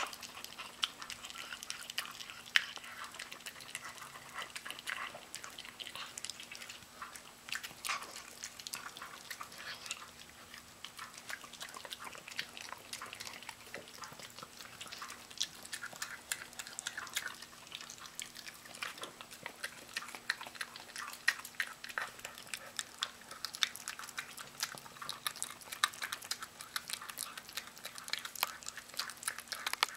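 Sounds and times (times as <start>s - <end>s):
dog chewing raw chicken: 0.0s - 29.9s
sharp clicks and crunches: 24.6s - 29.9s.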